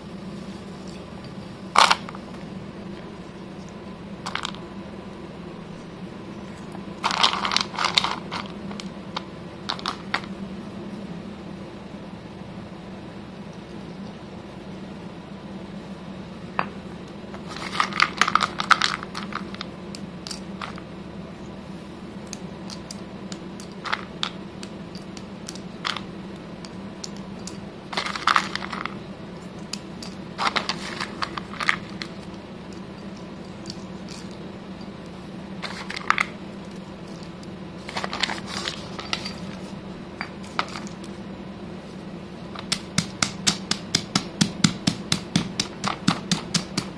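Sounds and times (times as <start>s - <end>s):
steady low hum: 0.0s - 46.9s
pencil sticks clattering into stone mortar: 30.0s - 32.3s.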